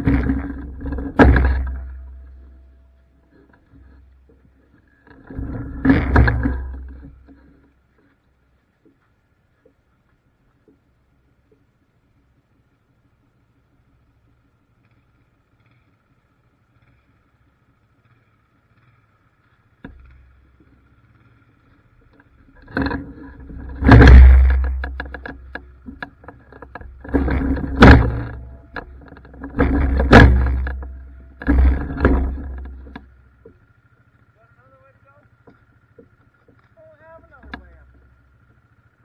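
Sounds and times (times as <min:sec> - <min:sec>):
atv engine starting and revving: 0:22.4 - 0:39.0.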